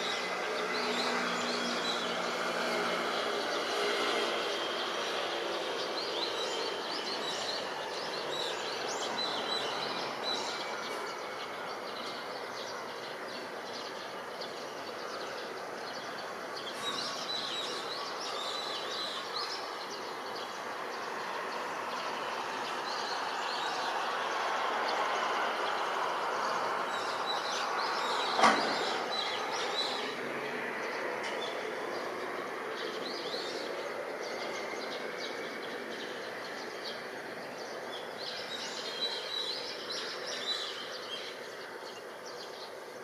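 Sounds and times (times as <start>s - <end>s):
city noise rush: 0.0s - 43.0s
small birds chirping: 0.0s - 43.0s.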